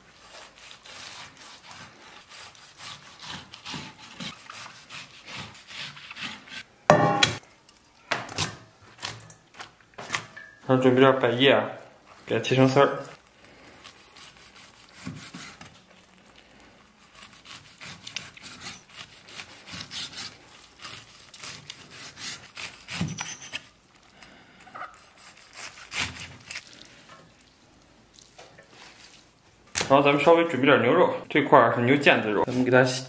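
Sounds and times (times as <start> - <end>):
blade thudding on wood: 6.9 - 7.4.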